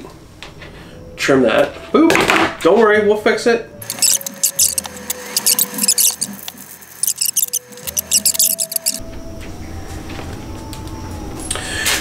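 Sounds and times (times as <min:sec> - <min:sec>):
plastic straws squeaking and clicking: 0:03.8 - 0:09.0.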